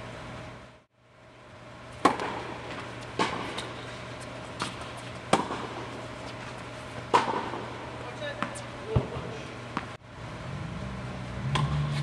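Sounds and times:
low steady hum: 0.0 - 12.0
tennis ball struck by racket: 2.0 - 3.8, 4.4 - 6.0, 7.0 - 10.0, 11.4 - 12.0.

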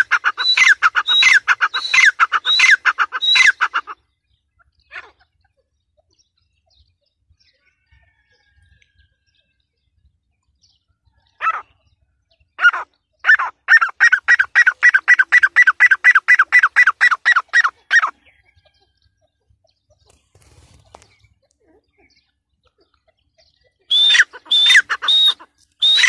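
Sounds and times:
bird calling shrill notes: 0.0 - 4.0, 23.9 - 26.0.

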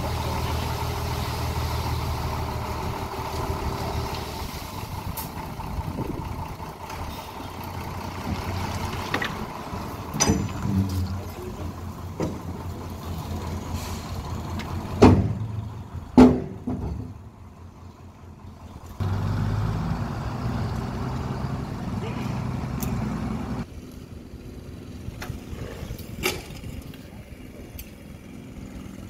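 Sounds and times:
sand pouring from truck bed: 0.0 - 5.4
truck engine running: 0.0 - 29.0
sharp metal knocks and bangs: 10.1 - 11.3, 15.0 - 17.2.

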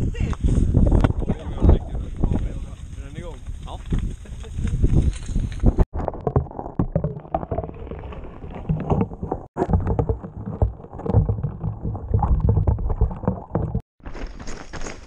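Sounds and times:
muffled underwater rumbling: 5.6 - 13.8
dull knocks and thuds: 8.6 - 13.8.

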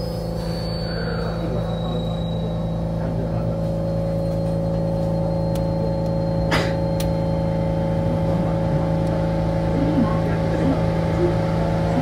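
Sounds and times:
high squeal: 0.0 - 7.9
electrical humming tones: 0.0 - 12.0
train low rumble: 0.0 - 12.0.

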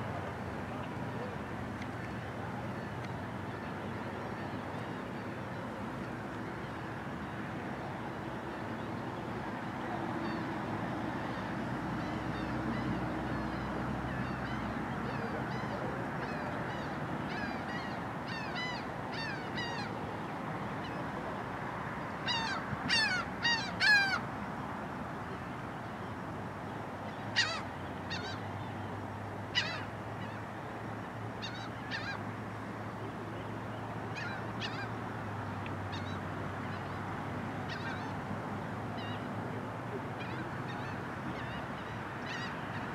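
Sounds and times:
steady background hiss: 0.0 - 42.9
birds calling harshly: 22.2 - 24.2, 27.1 - 28.8, 29.5 - 30.7, 34.1 - 35.0.

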